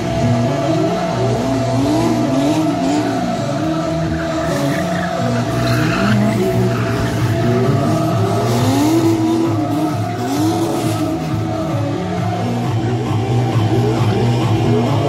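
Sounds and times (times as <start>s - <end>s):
car engines revving: 0.0s - 15.0s
tyre squeal: 4.0s - 11.2s.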